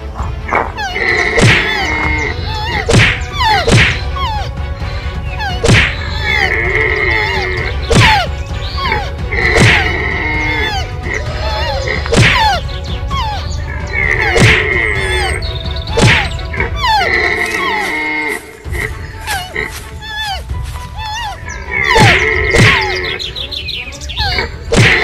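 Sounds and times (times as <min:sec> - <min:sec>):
cartoon punch whacks: 0:02.9 - 0:04.0, 0:05.6 - 0:06.0, 0:12.1 - 0:12.6, 0:15.9 - 0:16.3.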